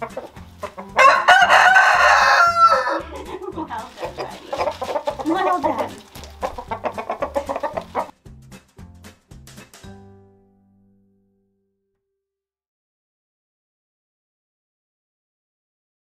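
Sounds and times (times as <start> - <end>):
chickens clucking: 0.0 - 8.2
rooster crowing: 1.0 - 3.0.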